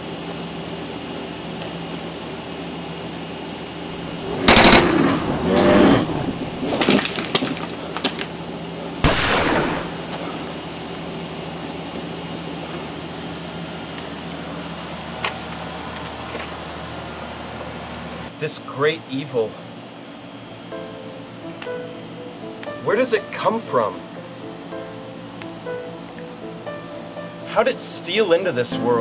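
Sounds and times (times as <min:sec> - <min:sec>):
steady background hum: 0:00.0 - 0:29.0
gunfire bursts: 0:04.1 - 0:06.8, 0:09.0 - 0:10.1.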